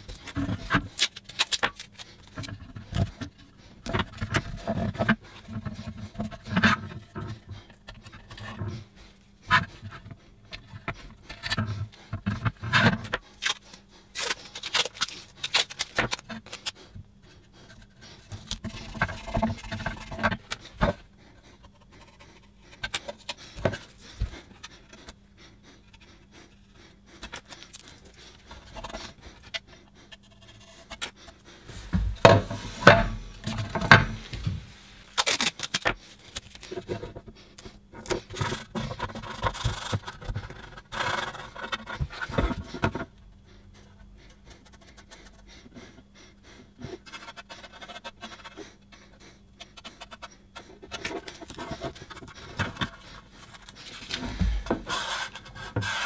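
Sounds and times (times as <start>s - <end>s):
tape rubbing and scraping: 0.0s - 46.0s, 46.8s - 56.0s
tape pulled and torn: 35.1s - 36.7s.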